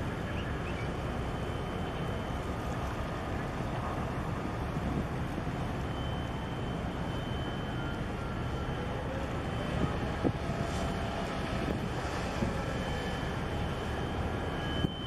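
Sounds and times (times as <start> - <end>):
wind on microphone: 9.7 - 12.7.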